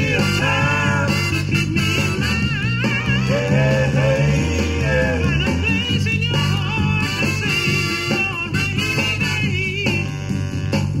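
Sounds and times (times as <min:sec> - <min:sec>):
soul song with band: 0:00.0 - 0:11.0.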